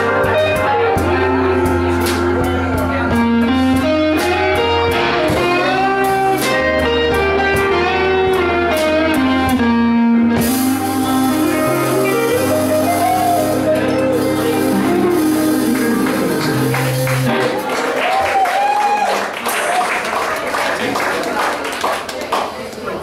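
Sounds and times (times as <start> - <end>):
blues-rock band playing: 0.0 - 18.9
electric guitar lead: 0.0 - 19.0.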